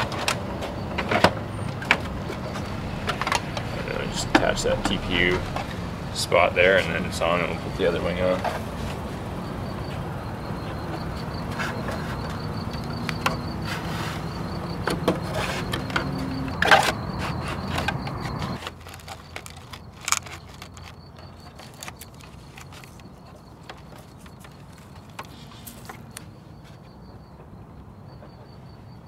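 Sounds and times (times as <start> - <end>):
steady low hum: 0.8 - 11.4.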